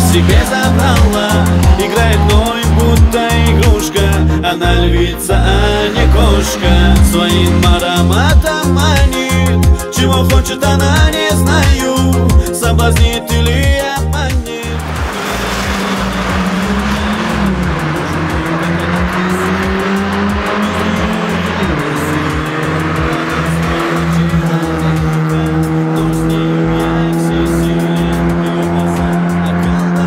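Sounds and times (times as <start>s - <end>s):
tyres squealing: 0.0s - 9.1s
car engines at full throttle: 0.0s - 30.0s
music with steady bass beat: 0.0s - 30.0s.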